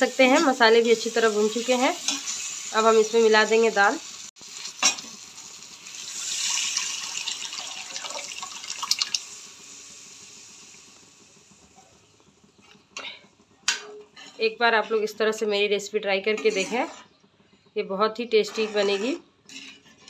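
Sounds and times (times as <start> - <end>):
wet splashing pour with hiss: 5.9 - 10.2.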